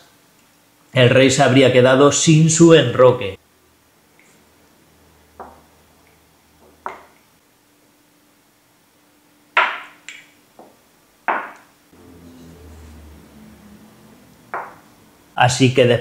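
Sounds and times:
chess pieces knocking on board: 0:06.6 - 0:07.2, 0:09.6 - 0:11.7, 0:14.5 - 0:14.8.

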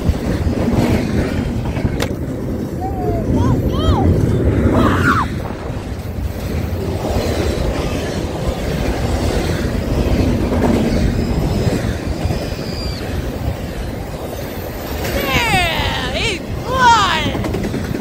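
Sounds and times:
freight train wheels rumbling: 0:00.0 - 0:18.0.

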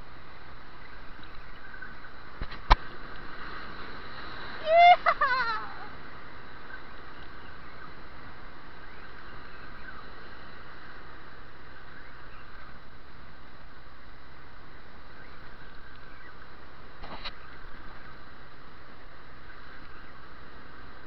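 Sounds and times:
surf breaking on rocks: 0:02.4 - 0:06.4.

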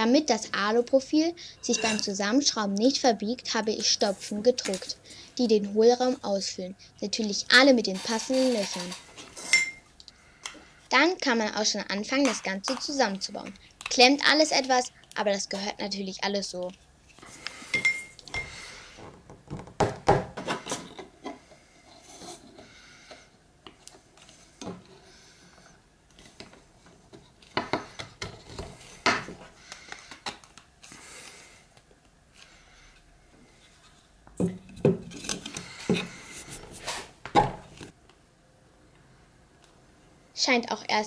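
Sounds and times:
plastic parts knocking and clicking: 0:19.1 - 0:21.1.

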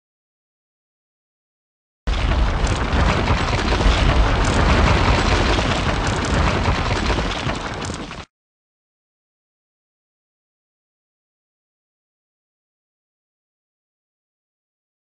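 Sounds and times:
wall crumbling crash: 0:02.1 - 0:08.3.

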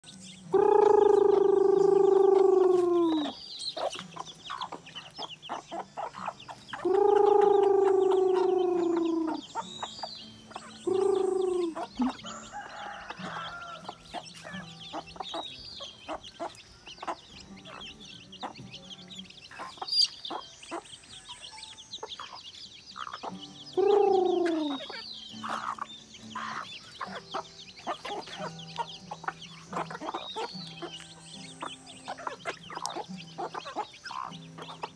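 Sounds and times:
chicks cheeping: 0:00.0 - 0:34.9
hens clucking: 0:00.0 - 0:34.9
rooster crowing: 0:11.1 - 0:14.0.

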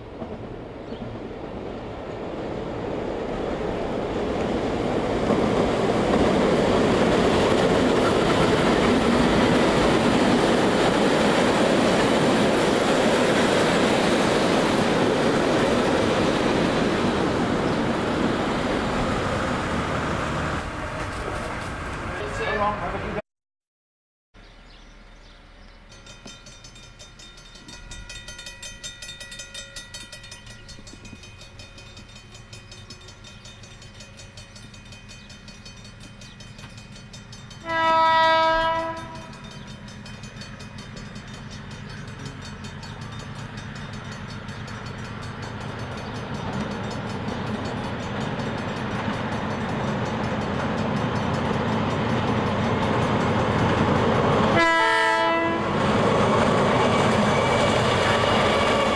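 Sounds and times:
approaching train rumble: 0:00.0 - 0:23.2, 0:24.4 - 0:58.9
locomotive horn blast: 0:37.6 - 0:39.4, 0:54.5 - 0:55.8, 0:56.7 - 0:58.9.

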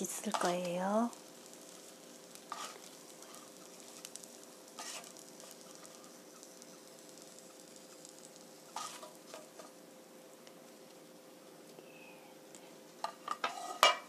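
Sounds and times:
oil sizzling in a frying pan: 0:00.0 - 0:11.7, 0:12.4 - 0:14.0
metal spatula scraping a pan: 0:01.4 - 0:04.2, 0:04.8 - 0:06.1, 0:08.7 - 0:09.7, 0:13.1 - 0:14.0.

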